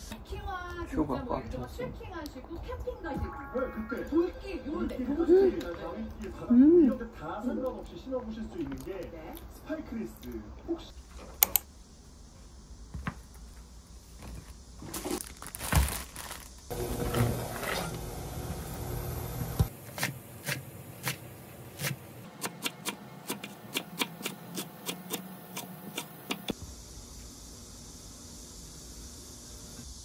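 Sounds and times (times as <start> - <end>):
plastic packaging crinkling: 14.8 - 16.7
knife chopping on wooden board: 21.8 - 26.5.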